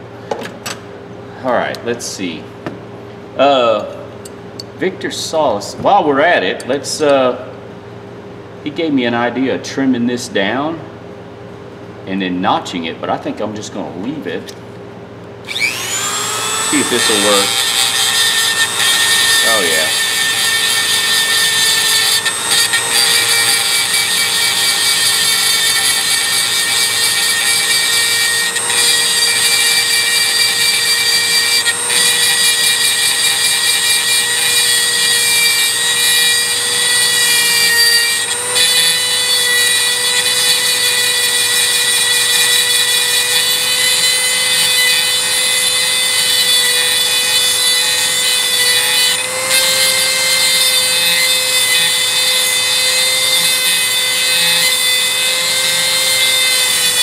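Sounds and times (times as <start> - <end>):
rotary tool grinding metal: 15.5 - 57.0.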